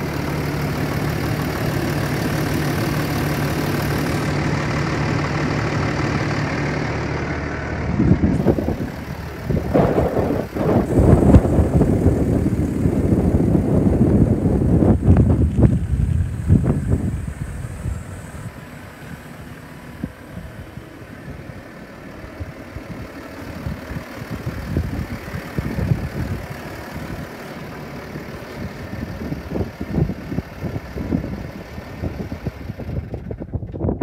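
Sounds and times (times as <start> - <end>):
tractor diesel engine idling: 0.0 - 34.0
wind buffeting microphone: 7.8 - 27.4, 28.6 - 34.0.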